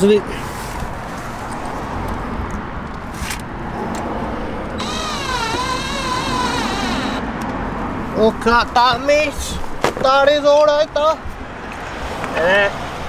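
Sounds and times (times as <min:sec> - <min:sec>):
cordless drill motor whine: 0:04.8 - 0:07.2.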